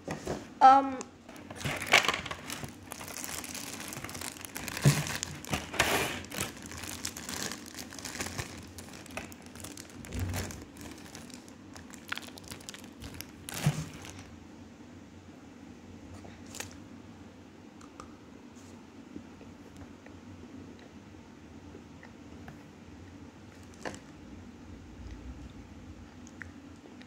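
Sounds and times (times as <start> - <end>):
plastic wrapper crinkling: 1.3 - 14.3, 16.4 - 16.8.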